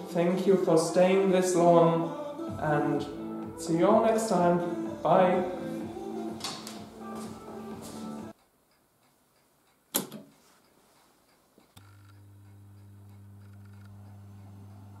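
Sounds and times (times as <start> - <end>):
radio speaker humming: 11.8 - 15.0.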